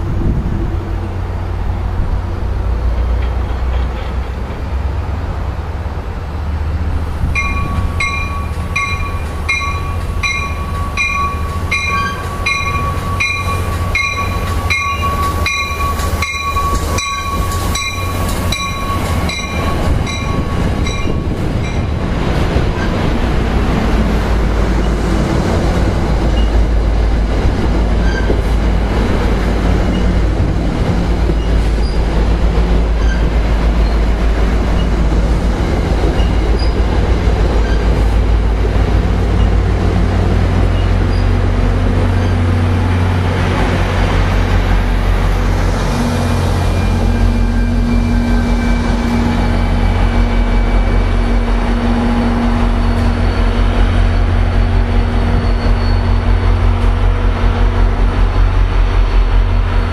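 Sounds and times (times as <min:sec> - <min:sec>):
train rolling rumble: 0:00.0 - 0:59.9
train bell ringing: 0:07.4 - 0:21.9, 0:46.6 - 0:49.8.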